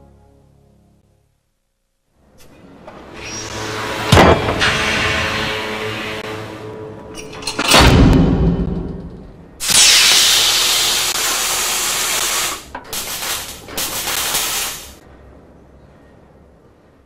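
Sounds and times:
loud hiss: 9.6s - 15.0s.

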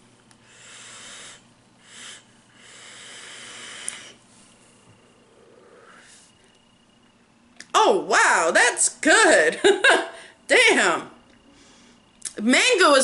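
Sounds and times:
air hissing through vape: 0.4s - 4.2s.

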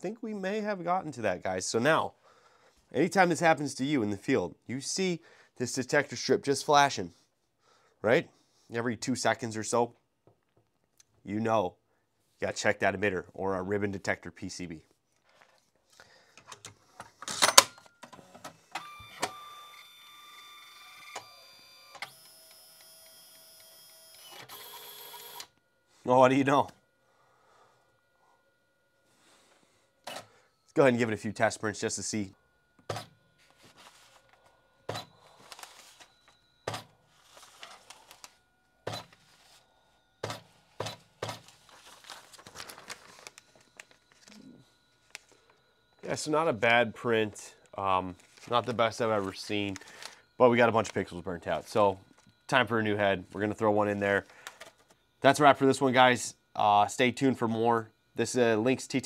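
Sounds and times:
printer motor whine: 18.6s - 25.8s
paper rustling: 33.4s - 34.4s, 35.3s - 36.1s, 37.2s - 38.4s, 41.2s - 44.4s, 45.0s - 45.5s, 48.1s - 50.2s.

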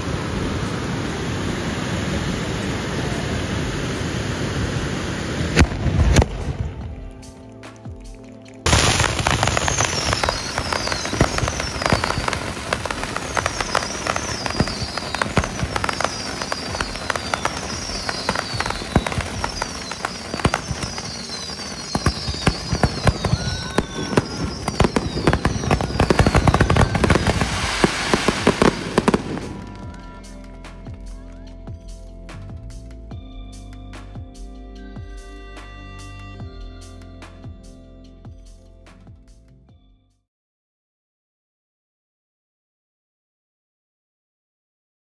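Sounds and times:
fireworks crackling: 0.0s - 33.0s
high falling firework whistles: 8.7s - 30.2s.

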